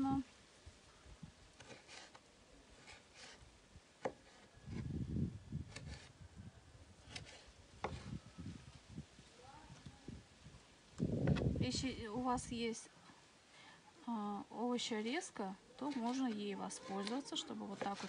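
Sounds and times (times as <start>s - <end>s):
knife cutting vegetables on board: 15.9s - 18.0s.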